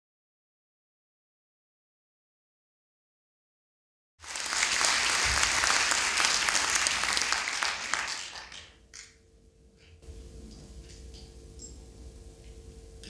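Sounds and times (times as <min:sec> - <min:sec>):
audience applauding: 0:04.2 - 0:09.2.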